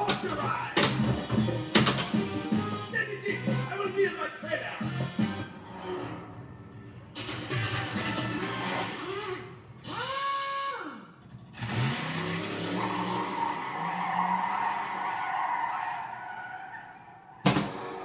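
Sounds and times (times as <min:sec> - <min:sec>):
tire screech: 0:07.5 - 0:18.0
car engine revving effect: 0:11.5 - 0:15.2.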